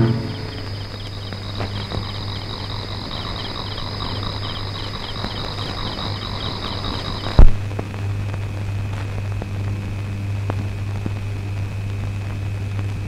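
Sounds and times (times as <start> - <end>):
crickets chirping: 0.0 - 9.3
low steady hum: 0.0 - 13.0.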